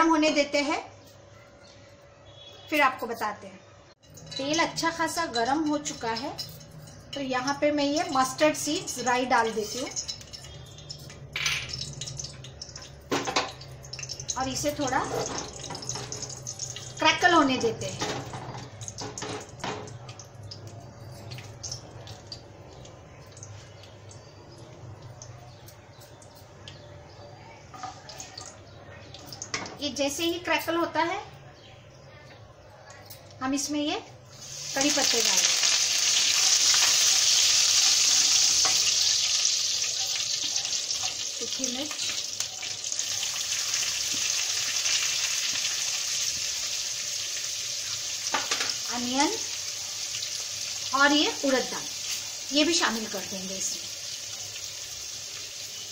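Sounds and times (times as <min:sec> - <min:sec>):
faint sizzle: 0:00.0 - 0:55.9
seeds popping in hot oil: 0:04.1 - 0:26.8, 0:34.3 - 0:55.9.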